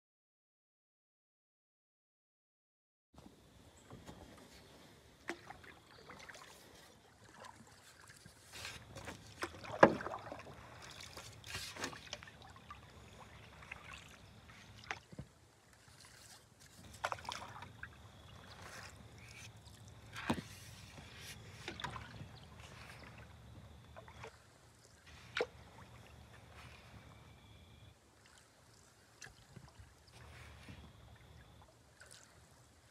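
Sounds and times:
canoe paddle stroking water: 0:03.7 - 0:32.9
water drips and splashes: 0:05.2 - 0:27.0, 0:28.2 - 0:32.9.

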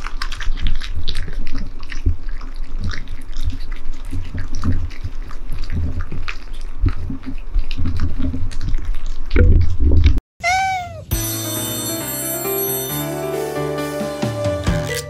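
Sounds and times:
cats lapping and chewing: 0:00.0 - 0:09.8.

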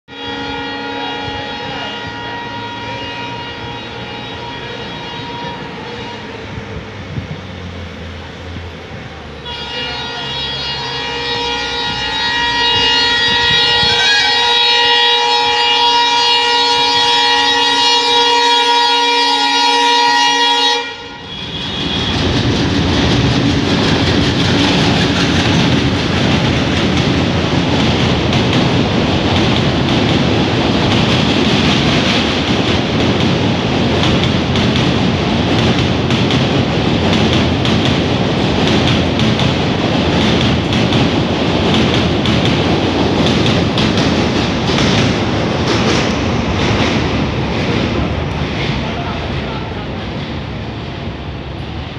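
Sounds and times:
locomotive horn blast: 0:00.1 - 0:06.6, 0:09.4 - 0:22.4
train wheels clattering on rails: 0:21.4 - 0:51.9.

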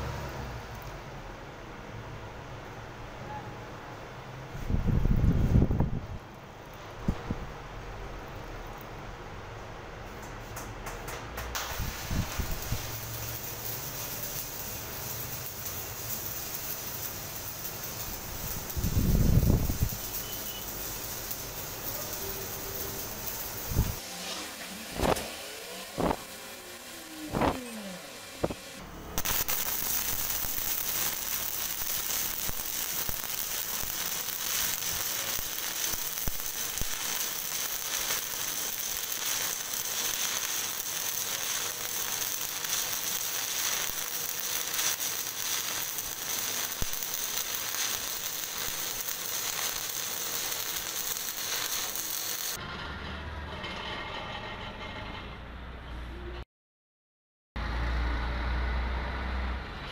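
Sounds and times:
welding arc crackling: 0:11.0 - 0:52.6.

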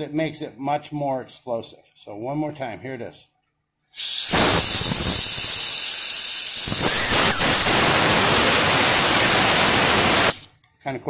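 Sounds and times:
compressed air hissing: 0:03.9 - 0:10.5
high whistle: 0:04.0 - 0:10.4.

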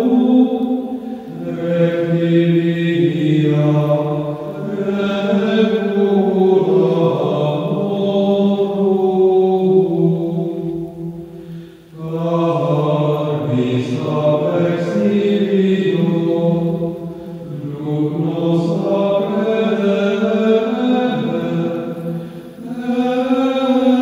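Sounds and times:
voices chanting: 0:00.0 - 0:24.0.

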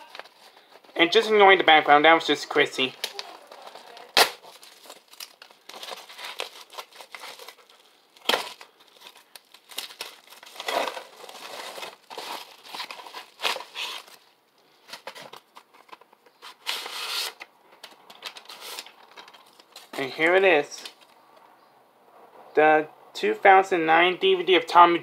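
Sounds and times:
packaging torn and crinkled: 0:02.9 - 0:20.0.

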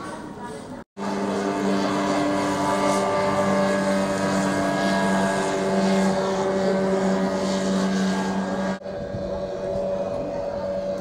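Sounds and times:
outboard motor running: 0:00.0 - 0:11.0.

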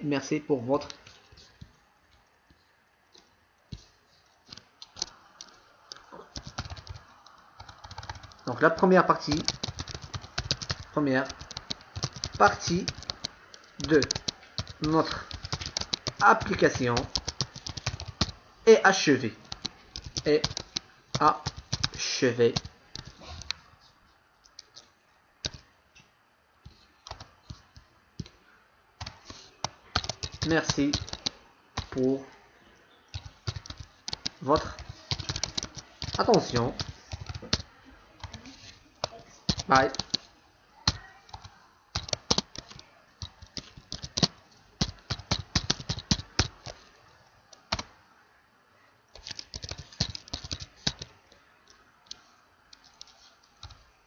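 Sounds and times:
computer keyboard typing: 0:04.4 - 0:18.4, 0:19.3 - 0:23.6, 0:25.4 - 0:25.7, 0:26.6 - 0:28.4, 0:29.0 - 0:32.2, 0:33.1 - 0:46.9, 0:47.5 - 0:47.9, 0:49.1 - 0:53.9.

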